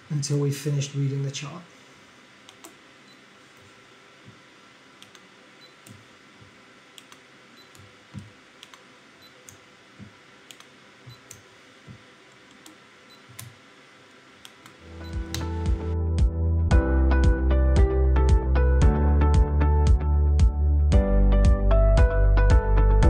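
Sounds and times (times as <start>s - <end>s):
music: 14.8s - 23.0s.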